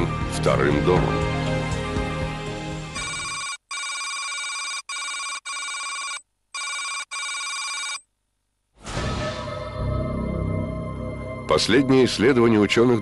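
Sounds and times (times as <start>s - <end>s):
background music: 0.0s - 3.4s, 8.8s - 13.0s.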